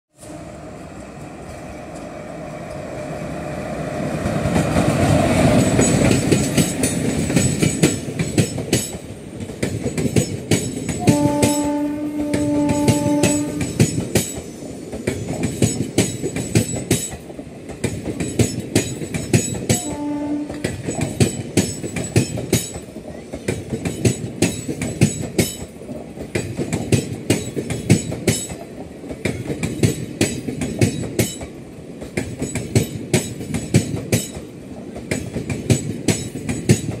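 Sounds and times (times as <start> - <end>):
train passing: 0.1 - 37.0
train wheels clacking over rail joints: 4.2 - 37.0
train horn: 11.0 - 13.9, 19.7 - 20.8.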